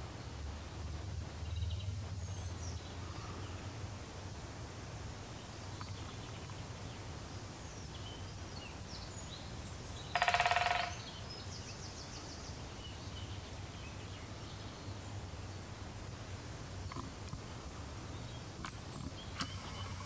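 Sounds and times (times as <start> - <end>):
steady low hum: 0.0 - 10.1, 11.1 - 20.0
woodpecker drumming: 10.1 - 11.3
faint bird chirps: 18.2 - 20.0.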